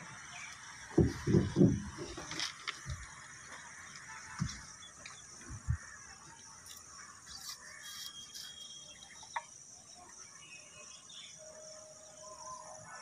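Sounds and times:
soft thumps: 0.9 - 3.1
bird chirps: 4.6 - 13.0.

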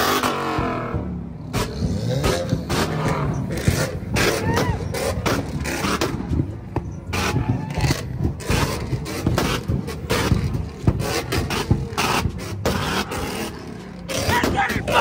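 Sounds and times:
exhaust pops and crackles: 0.0 - 15.0
low engine rumble: 0.5 - 15.0.

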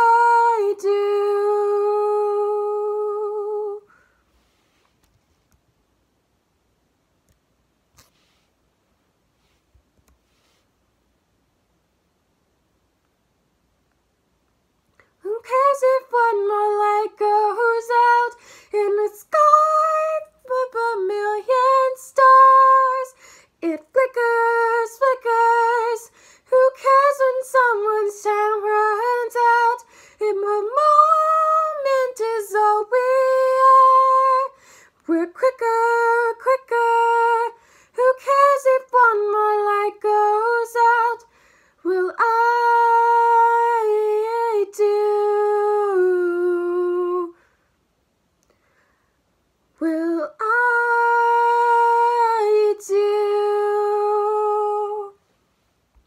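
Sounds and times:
woman singing wordless melody: 0.0 - 4.1, 15.0 - 47.5, 49.7 - 55.3.

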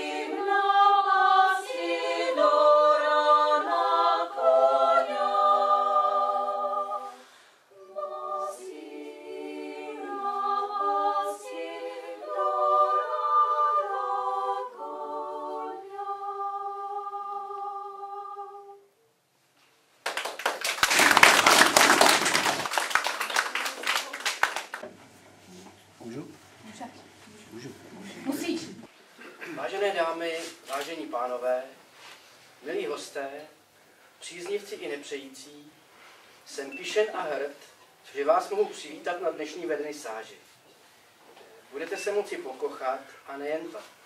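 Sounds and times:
women's choir singing: 0.0 - 18.9
audience applauding: 20.0 - 24.8.

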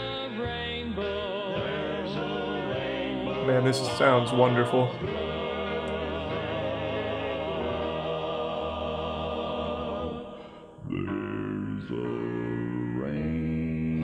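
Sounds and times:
quartet singing in close harmony: 1.0 - 13.2.

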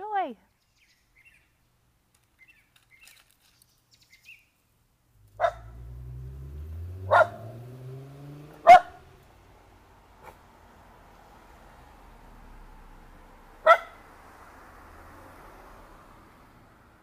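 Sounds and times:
faint bird chirps: 0.4 - 1.6, 2.4 - 4.6
low hum rising in pitch: 5.2 - 9.4
dog barking: 5.4 - 5.8, 7.0 - 7.6, 8.6 - 9.0, 13.6 - 14.0.

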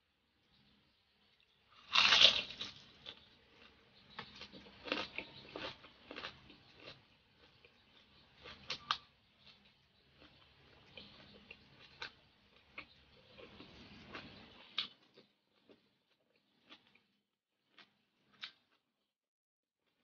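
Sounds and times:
crunchy chewing: 1.4 - 19.0
loud crunch of a bite: 1.8 - 7.8.

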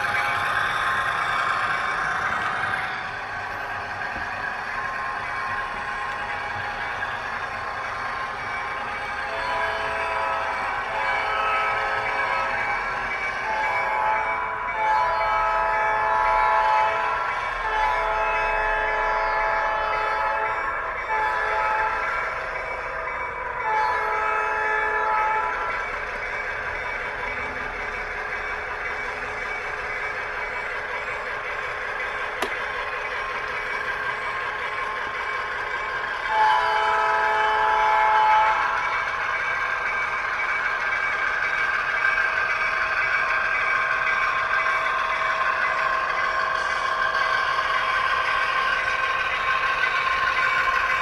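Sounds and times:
locomotive air horn blasts: 36.3 - 38.6.

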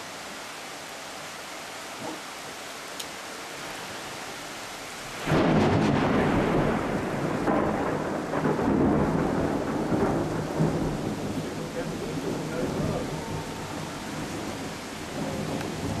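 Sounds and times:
rain hissing: 0.0 - 16.0
thunder rumbling: 5.2 - 16.0.

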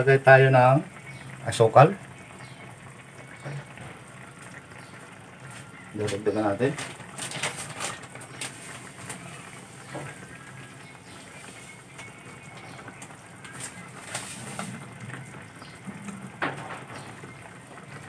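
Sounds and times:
sauce bubbling in a frying pan: 0.0 - 18.0
low cooing: 14.6 - 16.9.

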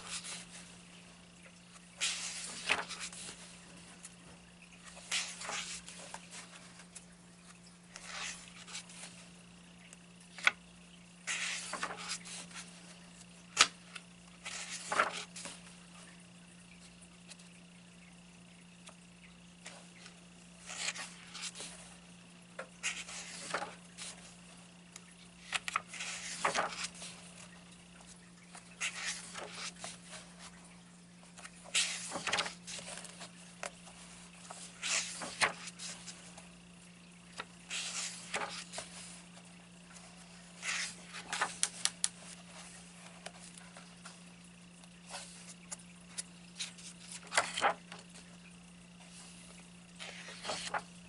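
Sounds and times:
paper pages rustling: 0.0 - 0.7, 1.7 - 9.2, 11.3 - 15.7, 20.6 - 21.9, 22.8 - 24.4, 25.4 - 27.5, 28.1 - 30.6, 31.3 - 36.5, 37.4 - 44.2, 44.8 - 48.3, 49.0 - 51.0.

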